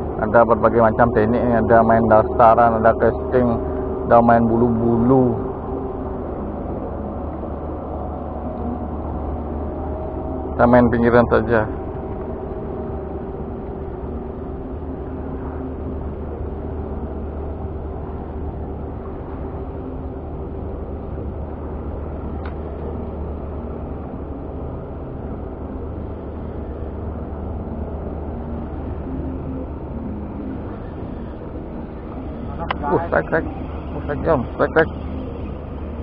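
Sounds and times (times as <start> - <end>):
low engine drone: 0.0 - 36.0
faint tick: 22.4 - 22.9.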